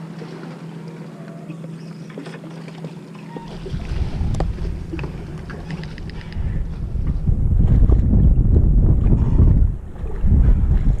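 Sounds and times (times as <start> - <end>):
steady low hum: 0.0 - 11.0
wind gusting on microphone: 3.4 - 11.0.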